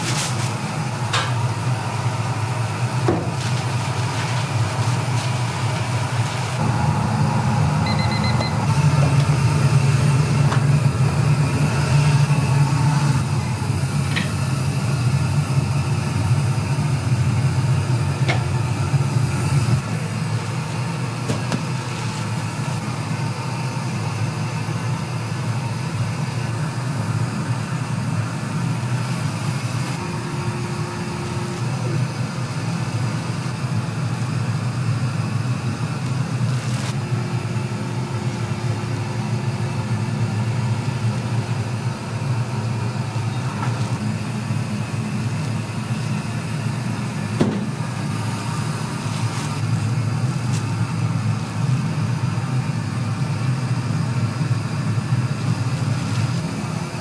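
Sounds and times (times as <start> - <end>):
kitchen machinery humming: 0.0 - 57.0
short electronic beep: 7.8 - 8.8.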